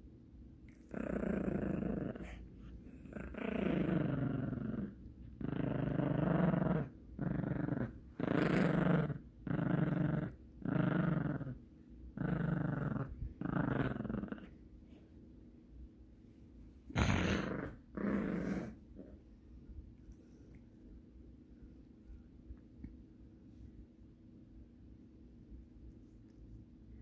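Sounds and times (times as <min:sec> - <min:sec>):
small dog growling: 0:00.7 - 0:14.6, 0:16.8 - 0:19.3.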